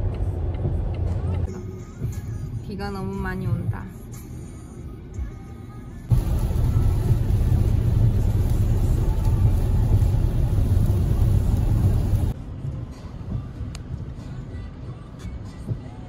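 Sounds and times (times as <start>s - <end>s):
tyres and engine rumble: 0.0s - 2.7s, 6.0s - 16.0s
hiss of rain and spray: 6.1s - 12.4s.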